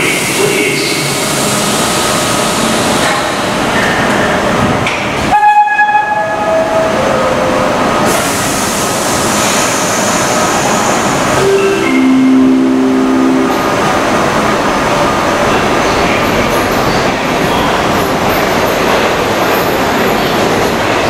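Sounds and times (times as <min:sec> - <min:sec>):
subway train wheels rumbling: 0:00.0 - 0:21.0
shrill descending tone: 0:11.4 - 0:14.0.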